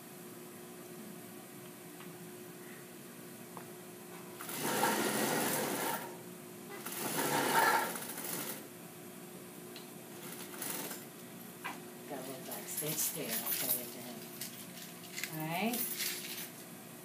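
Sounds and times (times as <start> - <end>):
industrial sewing machine stitching: 4.4 - 6.2, 6.8 - 8.6, 10.2 - 11.1.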